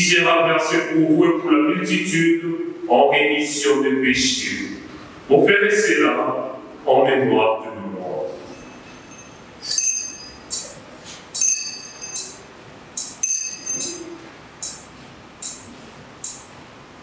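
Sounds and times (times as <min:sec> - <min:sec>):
altar bells jingling: 0:08.5 - 0:10.7, 0:11.4 - 0:12.4, 0:13.2 - 0:14.2
metal chain clinks: 0:08.5 - 0:10.8, 0:11.4 - 0:12.4, 0:13.0 - 0:14.8.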